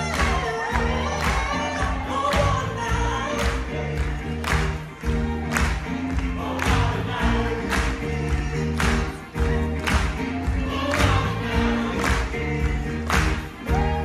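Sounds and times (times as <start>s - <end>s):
live band playing: 0.0s - 14.0s
group singing in harmony: 5.3s - 14.0s.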